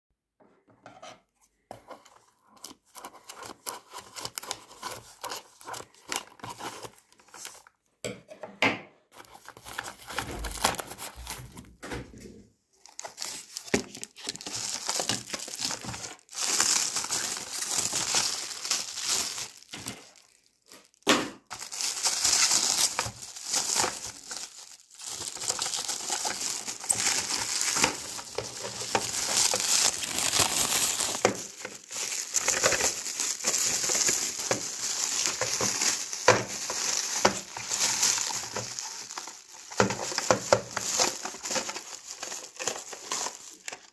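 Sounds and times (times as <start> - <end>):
plastic bag crinkling: 3.4 - 7.7, 9.2 - 11.6, 12.8 - 43.9
cardboard box being opened: 9.4 - 11.6
tape tearing: 21.5 - 43.9.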